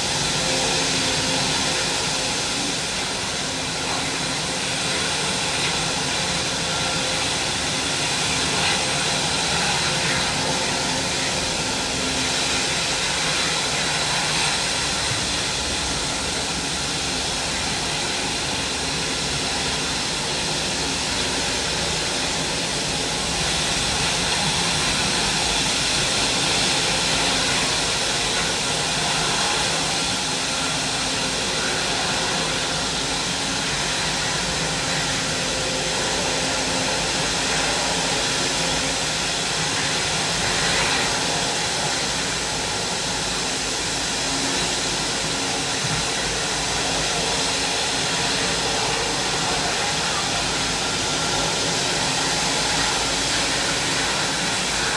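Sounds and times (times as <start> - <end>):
jet engines running: 0.0 - 54.9.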